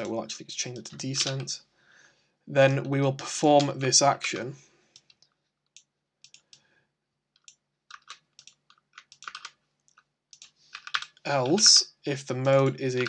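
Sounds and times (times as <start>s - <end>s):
typing on a computer keyboard: 7.4s - 9.6s, 10.4s - 11.7s.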